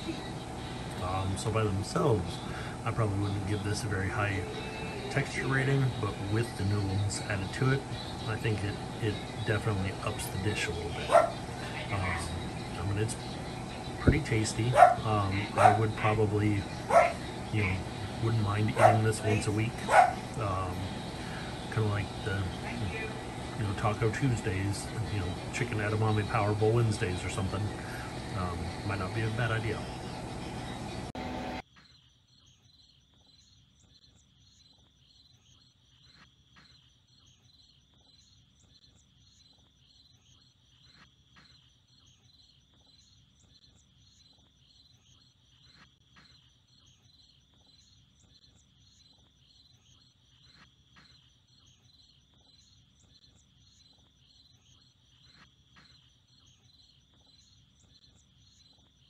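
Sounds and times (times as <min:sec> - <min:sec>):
insects trilling: 0:00.0 - 0:59.0
sharper insect call: 0:31.6 - 0:59.0.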